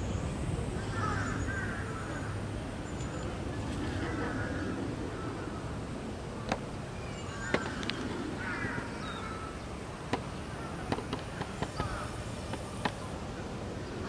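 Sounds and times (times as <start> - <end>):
outdoor background noise: 0.0 - 14.0
crows cawing: 0.9 - 2.4, 4.0 - 5.8, 7.3 - 9.6, 10.5 - 12.2.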